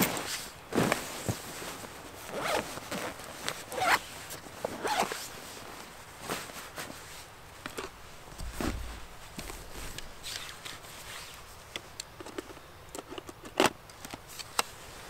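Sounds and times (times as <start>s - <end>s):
backpack zipper pulled open: 2.3s - 4.0s, 4.8s - 5.3s.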